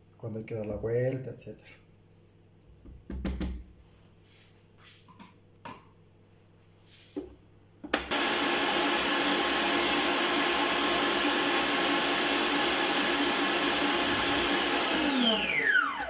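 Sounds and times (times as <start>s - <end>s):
stand mixer whirring: 8.0s - 16.0s.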